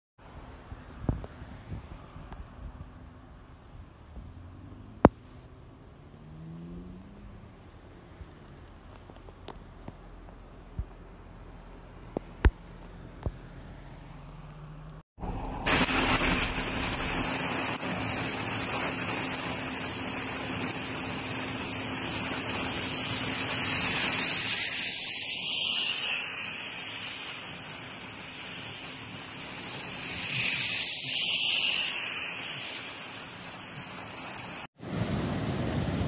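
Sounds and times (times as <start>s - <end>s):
tyres swishing on wet road: 0.2s - 36.0s
heavy rain on a road: 15.2s - 36.0s.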